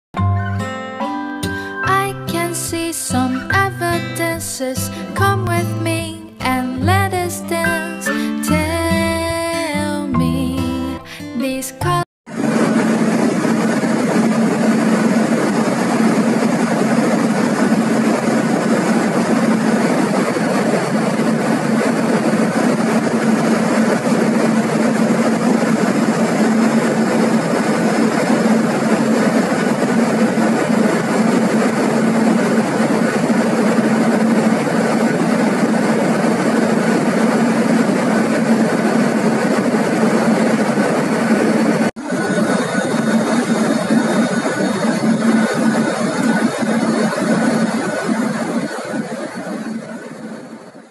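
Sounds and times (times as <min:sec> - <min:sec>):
loud engine drone: 0:12.3 - 0:50.9.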